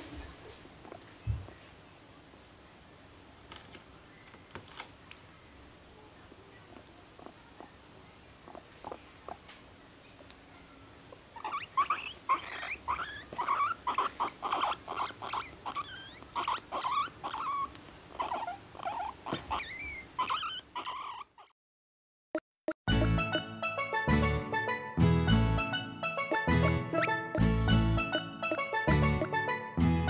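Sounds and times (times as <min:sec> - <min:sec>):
guinea pig squeaking: 0:06.5 - 0:10.2, 0:11.1 - 0:21.6, 0:26.2 - 0:29.4.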